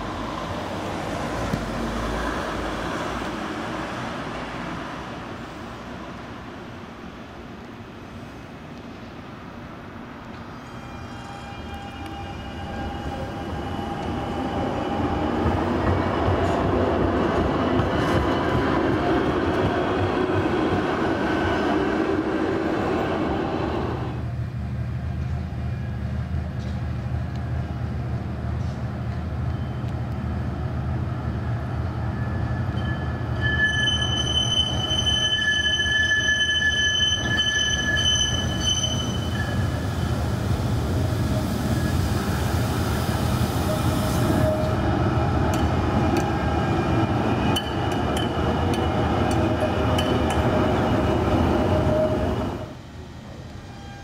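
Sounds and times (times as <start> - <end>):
tram running past: 0.0 - 54.0
tram wheels squealing: 10.4 - 23.6, 31.7 - 52.7, 53.6 - 54.0.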